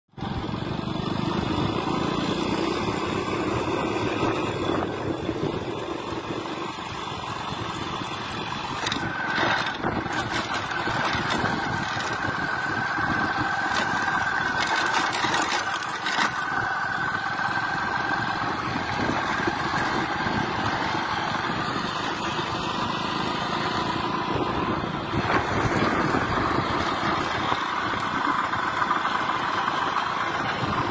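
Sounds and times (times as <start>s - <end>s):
motorcycle engine running: 0.1s - 30.9s
wind rushing over microphone: 3.8s - 6.6s, 24.0s - 28.6s.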